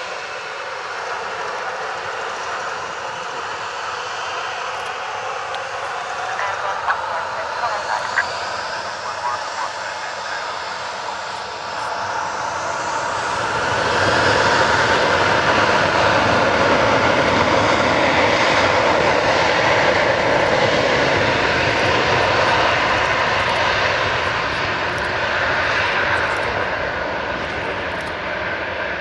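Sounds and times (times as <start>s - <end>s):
jet engines at high power: 0.0s - 29.0s.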